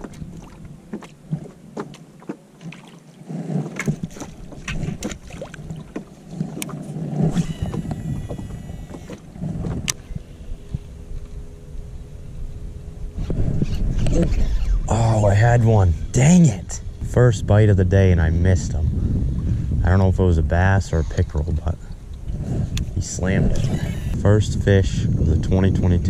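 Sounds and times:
steady hum: 0:00.0 - 0:26.0
low rumble: 0:03.9 - 0:26.0
brief whirring: 0:06.6 - 0:15.0.

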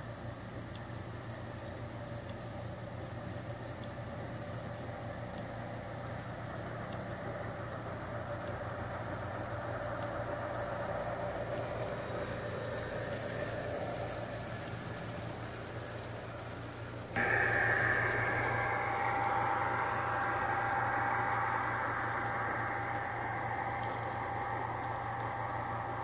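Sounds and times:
model trains rumbling on track: 0:00.0 - 0:26.0
steady high tone: 0:17.2 - 0:26.0.

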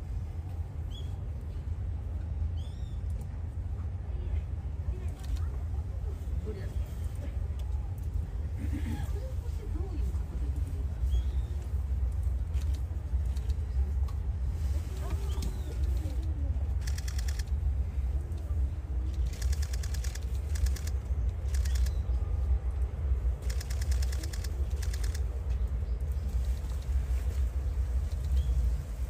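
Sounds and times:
steady low rumble: 0:00.0 - 0:29.0
faint distant voices: 0:03.2 - 0:29.0
rapid clicking bursts: 0:16.8 - 0:17.5, 0:19.1 - 0:22.0, 0:23.4 - 0:25.2.

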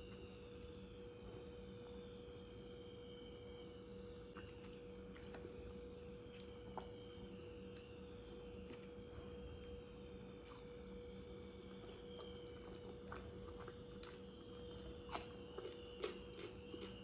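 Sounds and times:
faint hum: 0:00.0 - 0:17.0
chewing and lip smacks: 0:10.4 - 0:17.0.

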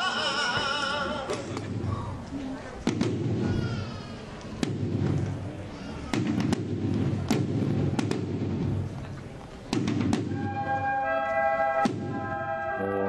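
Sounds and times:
rumbling echo between buildings: 0:00.0 - 0:13.0
firecracker bangs: 0:02.8 - 0:03.8, 0:04.6 - 0:09.0, 0:09.7 - 0:10.8, 0:11.7 - 0:12.6
brass band playing chords: 0:10.2 - 0:13.0.

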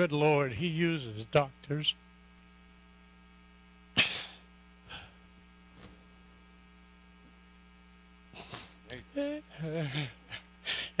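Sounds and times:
electrical mains hum: 0:00.0 - 0:11.0
sharp microphone handling noise: 0:05.6 - 0:06.2.

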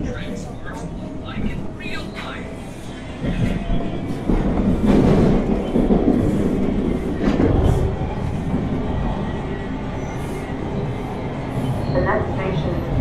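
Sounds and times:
subway wheels rumbling on track: 0:00.0 - 0:13.0.

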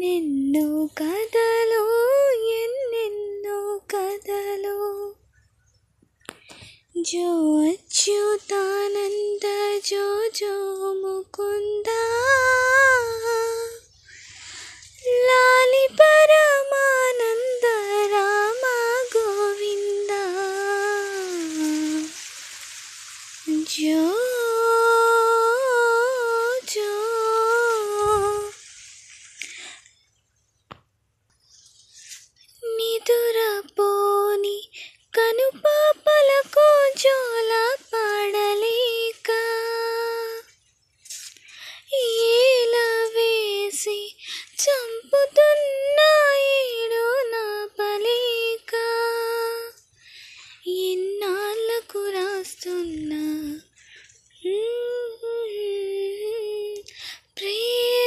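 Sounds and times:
woman singing unaccompanied: 0:00.0 - 0:05.4, 0:06.5 - 0:22.3, 0:23.3 - 0:28.7, 0:32.4 - 0:40.6, 0:41.8 - 0:49.9, 0:50.5 - 0:58.0
click: 0:56.7 - 0:57.0.

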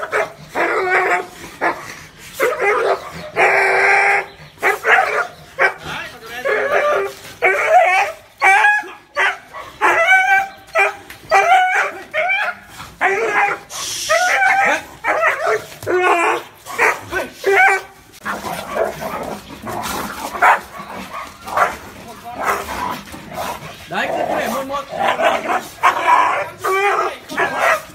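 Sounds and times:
dog barking rapidly: 0:04.6 - 0:05.9, 0:14.2 - 0:19.4, 0:20.2 - 0:22.9, 0:25.0 - 0:27.9.

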